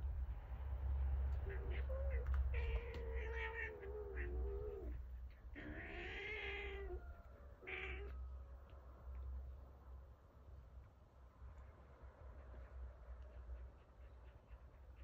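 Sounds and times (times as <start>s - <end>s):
cat crying: 1.3s - 8.2s.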